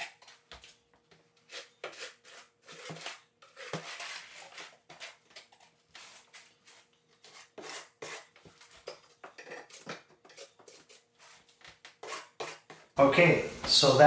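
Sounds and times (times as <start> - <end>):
trowel scraping mortar: 1.4 - 13.0.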